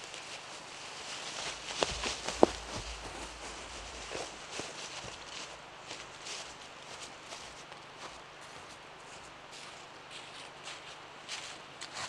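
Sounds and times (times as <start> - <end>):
footsteps crunching dry leaves: 0.0 - 12.0
sharp cracks underfoot: 1.1 - 5.5.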